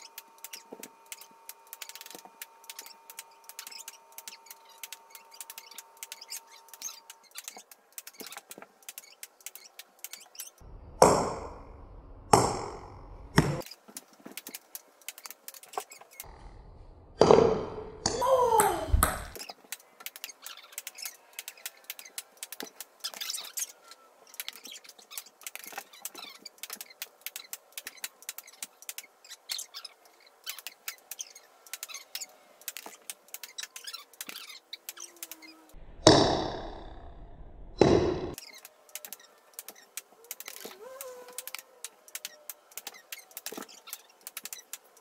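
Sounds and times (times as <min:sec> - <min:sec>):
ping-pong balls bouncing: 0:11.0 - 0:11.7, 0:12.3 - 0:13.7, 0:17.2 - 0:21.0, 0:36.0 - 0:36.9, 0:37.8 - 0:38.5.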